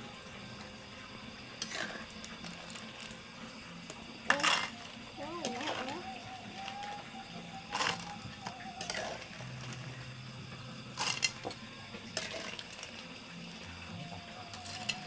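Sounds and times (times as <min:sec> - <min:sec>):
faint steady hum: 0:00.0 - 0:15.0
cooking pot and utensils clinking: 0:01.6 - 0:03.1, 0:03.9 - 0:07.0, 0:07.7 - 0:10.1, 0:10.9 - 0:13.1, 0:14.5 - 0:15.0.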